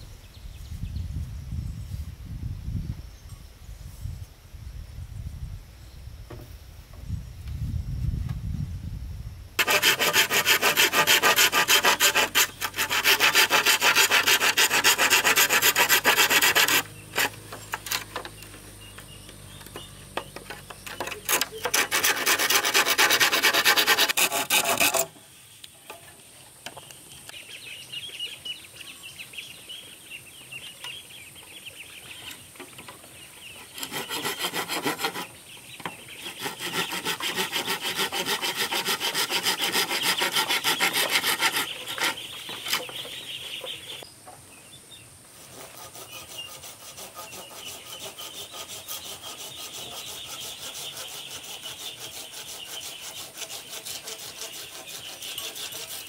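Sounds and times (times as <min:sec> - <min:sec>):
hand tool rasping wood: 0:09.6 - 0:25.2, 0:33.4 - 0:43.3, 0:45.4 - 0:56.0.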